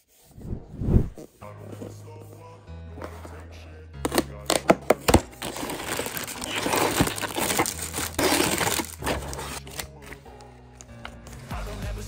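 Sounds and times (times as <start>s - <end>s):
plastic packaging crinkling: 4.5s - 10.1s.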